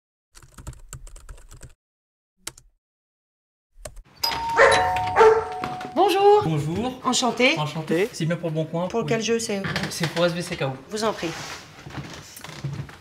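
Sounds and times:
computer keyboard typing: 0.4 - 1.8
two-tone doorbell chime: 4.2 - 6.4.

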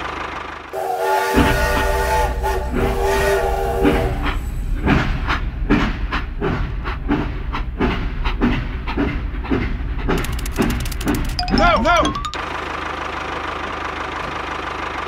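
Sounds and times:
steam train chuffing: 0.1 - 11.0
steam whistle chord: 0.8 - 4.6.

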